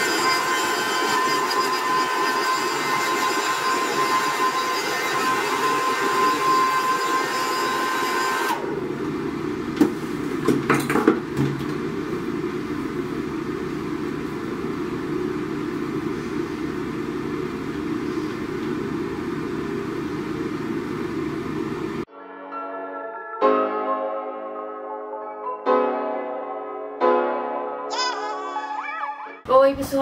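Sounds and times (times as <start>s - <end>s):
hair dryer blowing: 0.0s - 10.5s.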